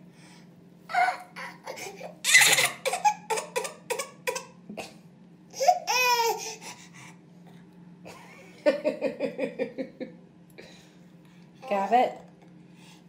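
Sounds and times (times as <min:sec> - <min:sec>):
toddler laughing: 0:00.9 - 0:04.4, 0:05.6 - 0:06.6
toddler crying: 0:05.6 - 0:06.6.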